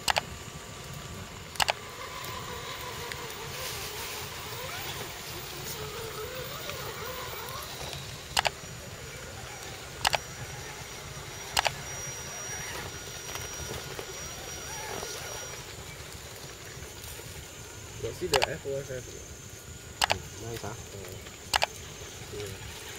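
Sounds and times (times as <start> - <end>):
sharp double clicks: 0.0 - 0.2, 1.5 - 1.8, 8.3 - 8.6, 10.0 - 10.2, 18.3 - 18.6, 20.0 - 20.2, 21.5 - 21.8
small electric motor whining: 0.0 - 22.9.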